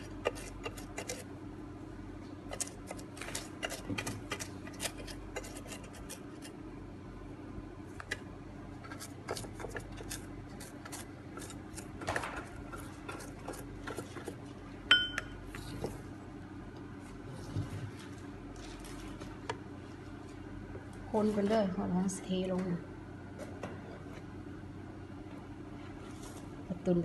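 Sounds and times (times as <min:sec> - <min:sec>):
brush tapping and scraping moulds: 0:00.0 - 0:01.3, 0:02.3 - 0:06.6, 0:08.8 - 0:14.5
faint steady hum: 0:00.0 - 0:27.0.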